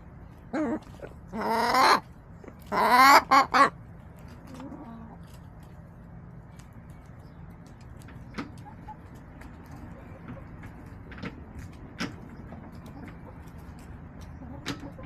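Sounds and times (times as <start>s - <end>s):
hens calling: 0.3s - 5.4s.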